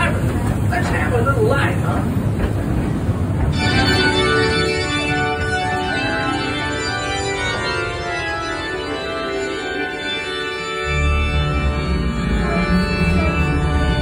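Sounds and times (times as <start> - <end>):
low rumble of moving train: 0.0 - 14.0
organ music: 3.4 - 14.0.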